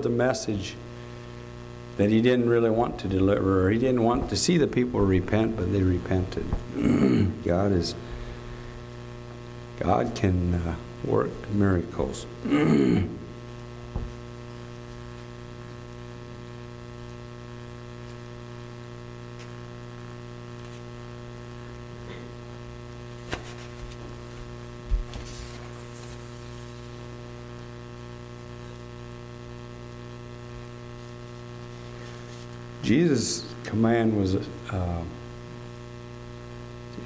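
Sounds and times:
electrical mains hum: 0.0s - 37.0s.

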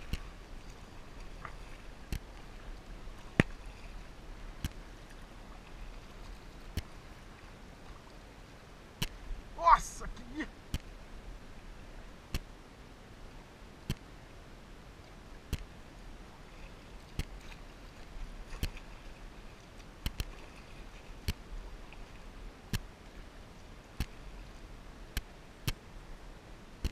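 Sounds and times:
paddle stroke ticks: 0.0s - 3.6s, 4.6s - 5.2s, 6.0s - 7.0s, 10.7s - 10.9s, 13.9s - 14.1s, 15.0s - 15.7s, 17.1s - 17.6s, 19.7s - 20.4s, 21.2s - 21.4s, 24.0s - 24.2s
faint hiss of water and air: 0.0s - 26.9s.

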